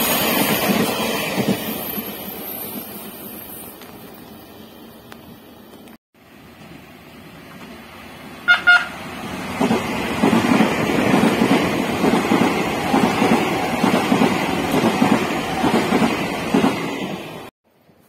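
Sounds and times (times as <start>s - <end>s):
electric train passing: 0.0s - 17.5s
train horn blasts: 8.4s - 9.0s.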